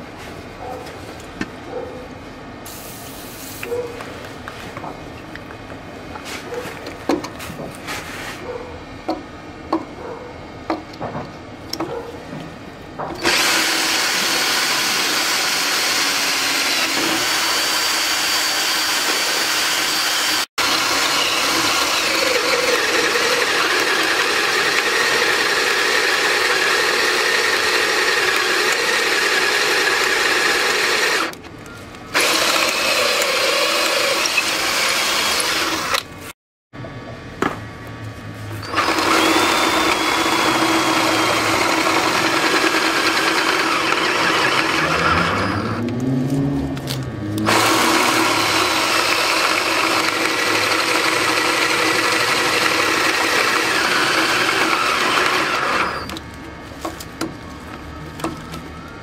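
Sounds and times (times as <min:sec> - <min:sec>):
electric drill whining: 0:13.2 - 0:31.4, 0:32.1 - 0:36.1, 0:38.6 - 0:46.0, 0:47.4 - 0:56.2.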